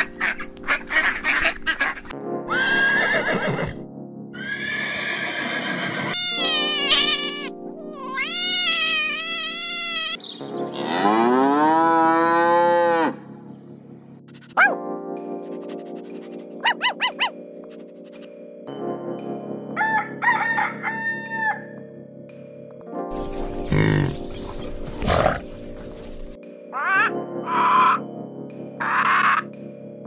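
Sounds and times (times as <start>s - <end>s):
duck quacking: 0.0s - 2.1s, 16.6s - 17.3s
background music: 0.0s - 30.0s
cat meowing: 6.0s - 10.2s
cow mooing: 10.8s - 13.2s.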